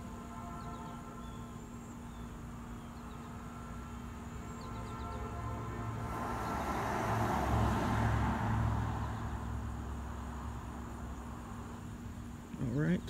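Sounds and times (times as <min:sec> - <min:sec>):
vehicle passing with tyre hiss: 0:02.0 - 0:12.8.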